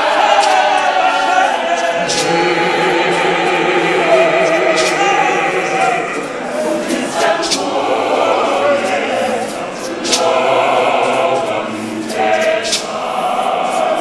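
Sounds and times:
congregation singing and chanting: 0.0s - 14.0s
sharp percussive hit: 2.0s - 7.4s.

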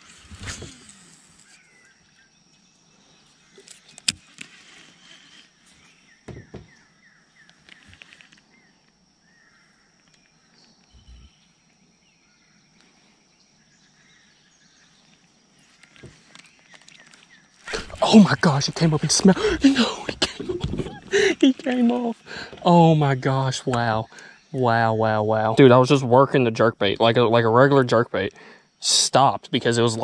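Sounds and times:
faint bird chirps: 0.1s - 20.9s
steady faint high tone: 6.8s - 15.9s, 17.6s - 30.0s.

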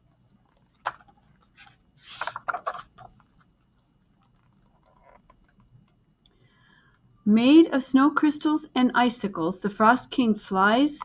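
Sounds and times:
paper page rustling: 0.5s - 3.5s.

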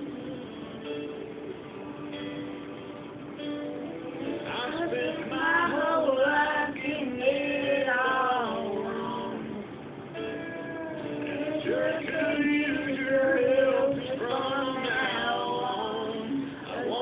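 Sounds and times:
person singing melody: 3.4s - 17.0s.

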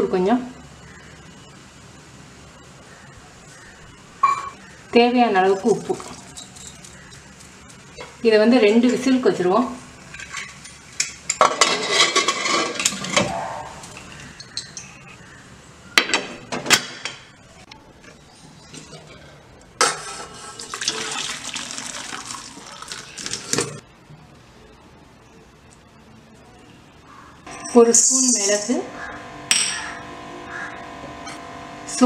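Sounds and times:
water splashing and draining: 20.5s - 23.8s.

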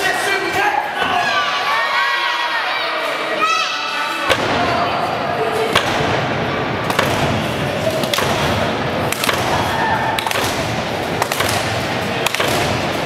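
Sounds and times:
crowd noise in large hall: 0.0s - 13.0s.

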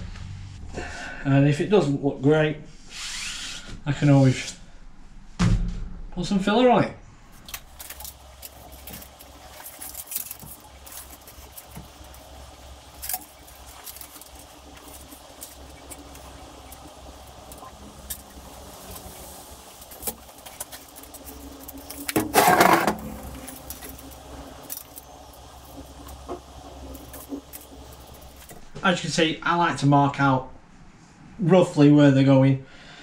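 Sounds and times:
low hum: 0.0s - 1.7s, 7.0s - 31.4s
metallic clatter: 17.5s - 28.6s.

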